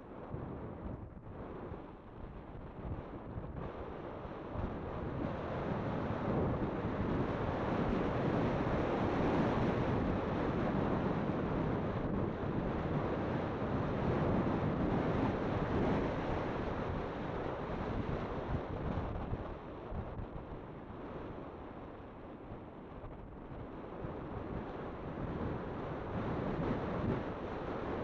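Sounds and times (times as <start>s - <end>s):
wind rushing over microphone: 0.0s - 28.0s.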